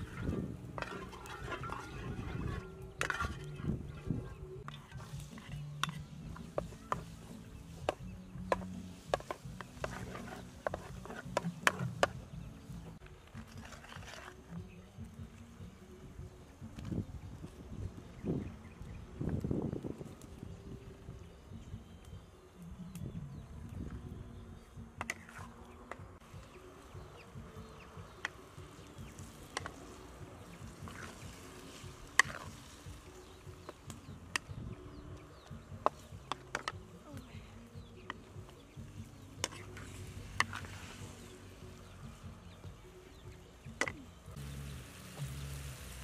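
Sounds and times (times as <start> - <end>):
wooden spoon scraping a wok: 0.0 - 14.8, 25.0 - 26.0, 28.8 - 34.5, 39.1 - 41.5.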